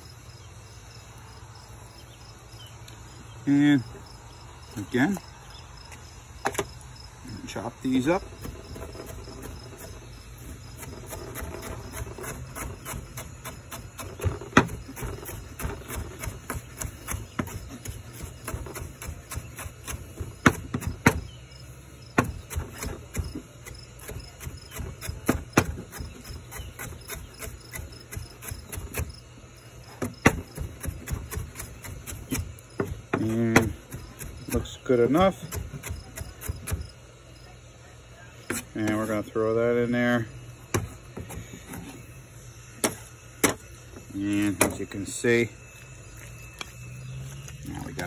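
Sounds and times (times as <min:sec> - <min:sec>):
knife chopping on plastic board: 0:10.8 - 0:21.3, 0:22.1 - 0:29.2, 0:30.0 - 0:36.9.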